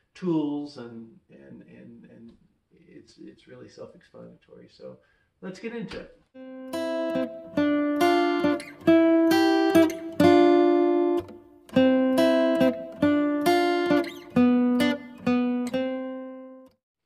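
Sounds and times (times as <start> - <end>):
acoustic guitar chords: 6.4 - 16.8.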